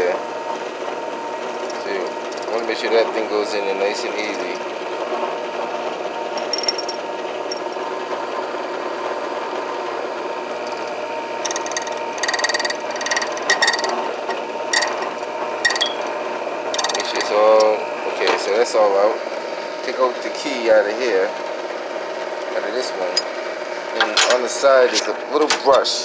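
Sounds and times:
key-cutting machine running: 0:00.7 - 0:19.0
cutter grinding metal: 0:01.4 - 0:05.2, 0:06.2 - 0:07.9, 0:10.4 - 0:18.2.

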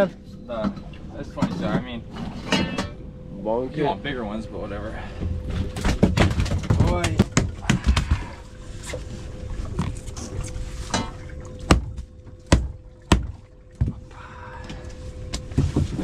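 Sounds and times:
faint steady hum: 0:00.0 - 0:16.0
sharp knocks and thumps: 0:05.5 - 0:08.4, 0:10.9 - 0:14.1.

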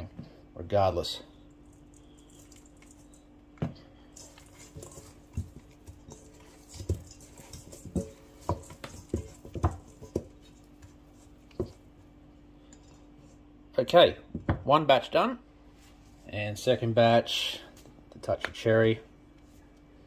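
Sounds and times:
faint steady hum: 0:00.0 - 0:20.0
meat slapping in steel bowl: 0:04.1 - 0:11.9.

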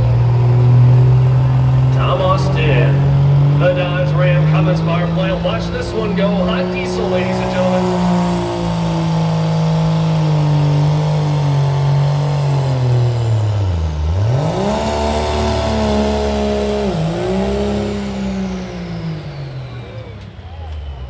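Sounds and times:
diesel engine at full throttle: 0:00.0 - 0:21.0.

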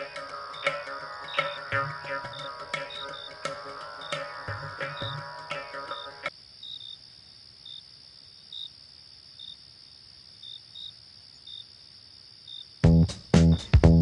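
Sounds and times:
music: 0:00.0 - 0:06.3, 0:12.8 - 0:14.0
crickets trilling: 0:00.0 - 0:13.4
insect chirps: 0:00.0 - 0:13.7.

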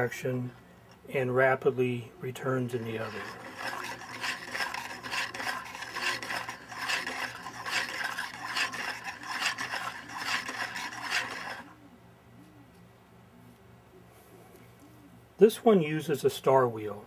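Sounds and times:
plastic mechanism rasping rub: 0:02.7 - 0:11.7.

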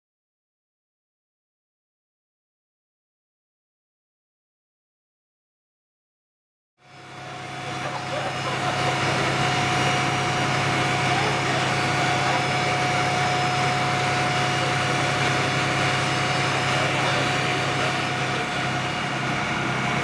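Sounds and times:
fire engine running: 0:06.8 - 0:20.0
pump whine: 0:06.8 - 0:20.0.

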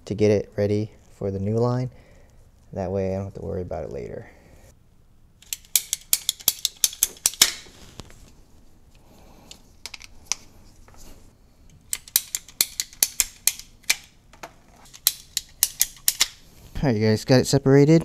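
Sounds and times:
hand tools clicking: 0:05.4 - 0:07.6, 0:11.8 - 0:14.1, 0:14.8 - 0:16.4.

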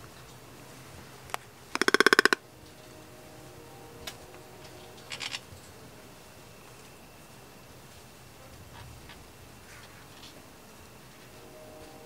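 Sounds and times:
toucan clicking rattle: 0:01.3 - 0:02.4.

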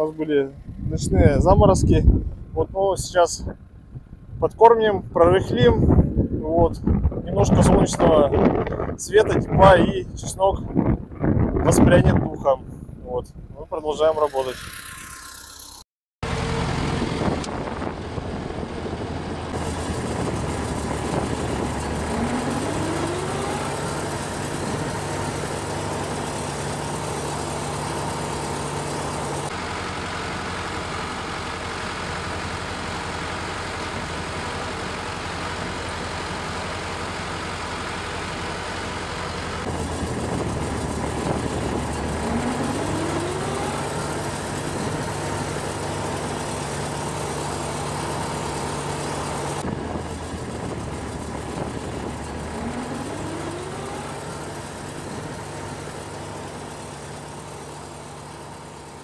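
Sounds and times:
tractor diesel engine running: 0:00.0 - 0:12.3, 0:13.0 - 0:59.0
short rising whine: 0:13.9 - 0:29.8, 0:39.6 - 0:57.0.

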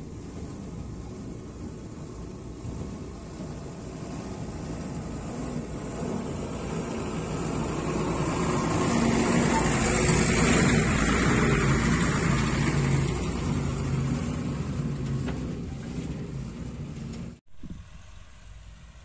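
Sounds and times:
lorry diesel engine passing: 0:00.0 - 0:17.4.

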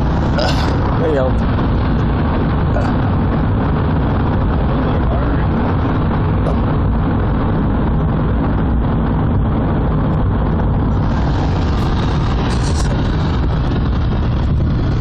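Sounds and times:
car engine noise: 0:00.0 - 0:15.0
tyres rumbling on pavement: 0:00.0 - 0:15.0
rushing hiss: 0:11.0 - 0:13.6.

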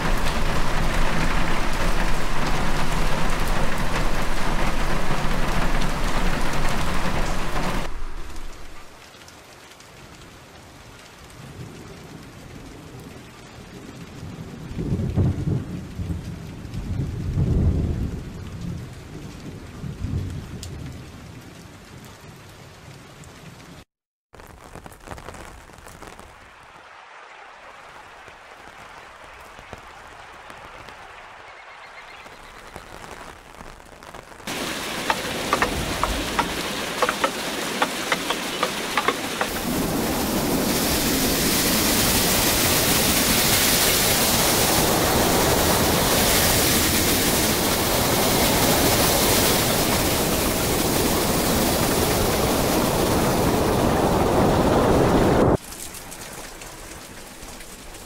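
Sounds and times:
sharp rain drop ticks: 0:00.0 - 0:10.3, 0:20.2 - 0:21.0, 0:32.2 - 0:40.7
rain pattering: 0:00.0 - 0:58.0
low rolls of thunder: 0:13.7 - 0:21.2, 0:39.5 - 0:55.5.

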